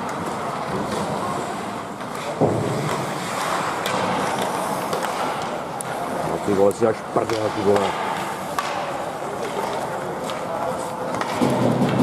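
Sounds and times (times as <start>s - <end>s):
hockey sticks clicking: 0.0s - 1.4s, 2.0s - 12.0s
arena noise: 0.0s - 12.0s
skates scraping ice: 0.0s - 12.0s.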